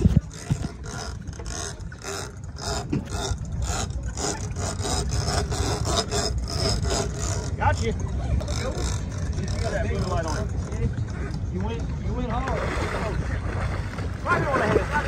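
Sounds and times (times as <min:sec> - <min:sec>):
rhythmic rasping scrape: 0:00.0 - 0:11.4.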